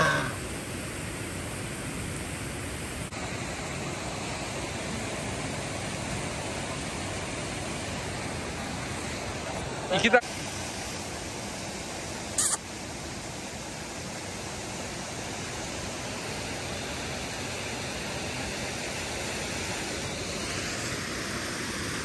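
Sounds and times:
mountain stream rushing: 0.0 - 22.0
small waterfall: 0.0 - 22.0
brief hissing noise: 12.4 - 12.6.

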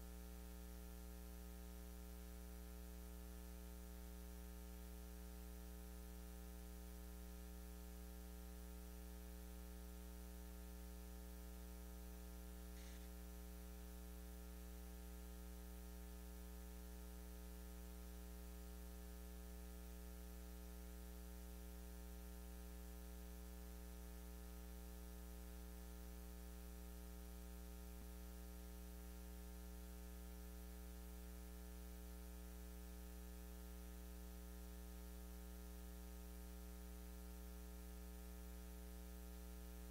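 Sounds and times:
electrical mains hum: 0.0 - 39.9
faint hiss: 12.6 - 13.8.

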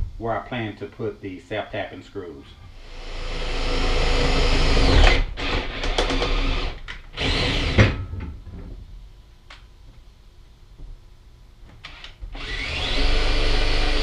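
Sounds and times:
cordless drill boring holes: 2.7 - 7.9, 11.9 - 14.0.

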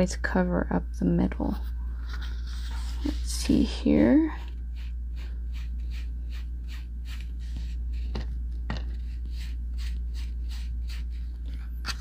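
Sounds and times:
ink applicator scratching cardstock: 4.8 - 8.2, 8.8 - 11.3.

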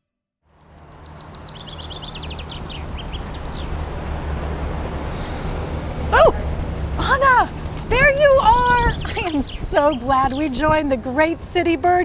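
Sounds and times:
low hum of traffic: 0.4 - 12.0
small bird chirping: 0.8 - 3.8.

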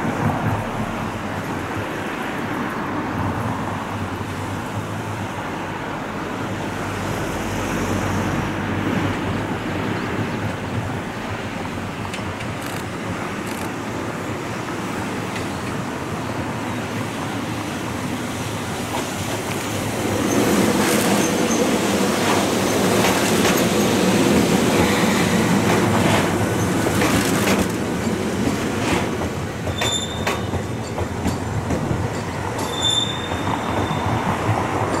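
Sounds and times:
electric train passing: 0.0 - 35.0
wheels clacking over rail joints: 11.9 - 14.2, 18.8 - 35.0
short high squeals: 32.6 - 34.2.

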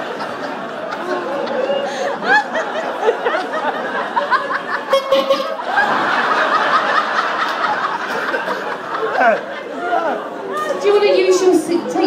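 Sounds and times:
audience laughing: 0.0 - 11.4
chatter: 0.0 - 12.0.

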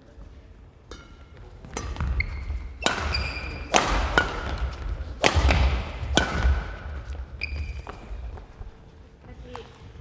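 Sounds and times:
racket hitting shuttlecock: 0.9 - 8.2
shoes squeaking on floor: 1.4 - 3.7, 7.0 - 8.8.

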